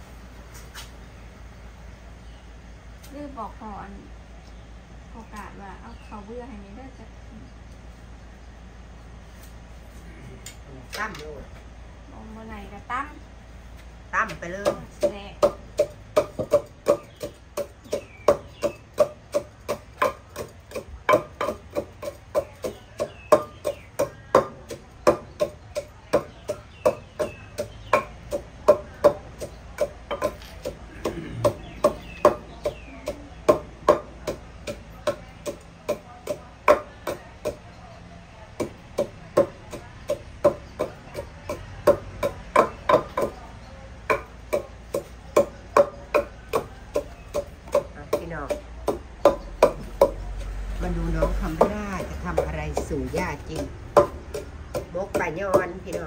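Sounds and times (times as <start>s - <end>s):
wooden pestle pounding in mortar: 14.2s - 37.6s, 38.6s - 56.0s.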